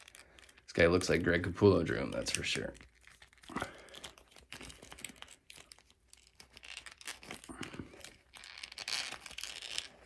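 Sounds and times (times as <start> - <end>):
plastic action figure being handled: 0.0 - 10.0.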